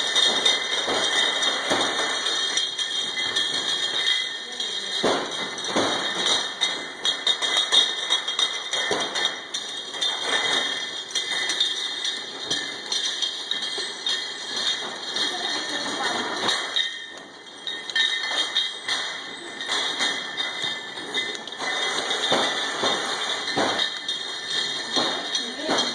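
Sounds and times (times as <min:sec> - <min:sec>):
glass bottles clinking: 0:00.0 - 0:25.9
people talking: 0:15.2 - 0:16.5, 0:25.3 - 0:25.9.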